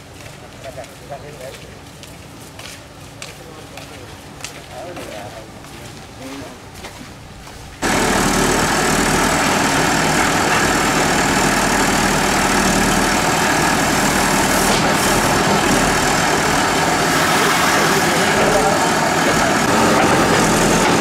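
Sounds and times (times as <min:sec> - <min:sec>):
diesel engine running: 0:07.8 - 0:21.0
digger arm digging earth: 0:07.8 - 0:21.0.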